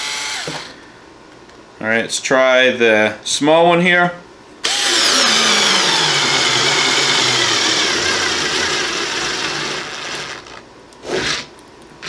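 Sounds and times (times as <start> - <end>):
cordless screwdriver motor whine: 0.0 - 0.7, 4.6 - 10.6.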